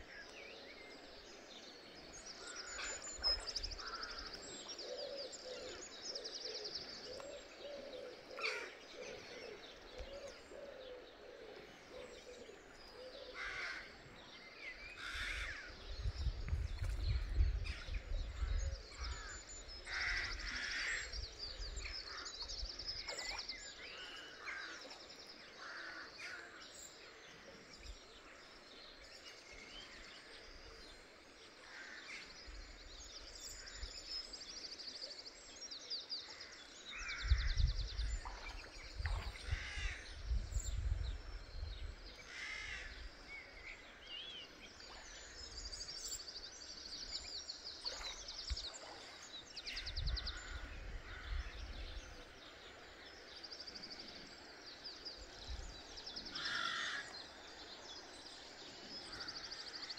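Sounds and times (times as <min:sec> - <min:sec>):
faint outdoor background: 0:00.0 - 0:59.9
small birds singing: 0:00.0 - 0:59.9.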